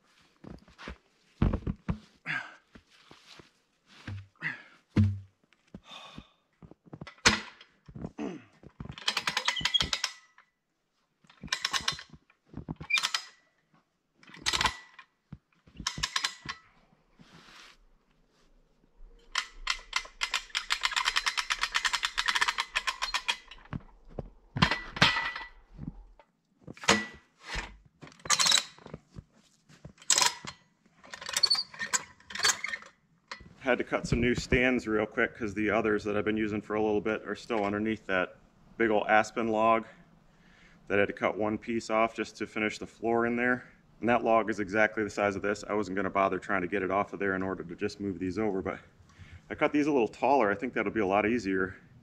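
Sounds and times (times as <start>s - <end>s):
knocks and clunks of log: 4.9s - 5.3s.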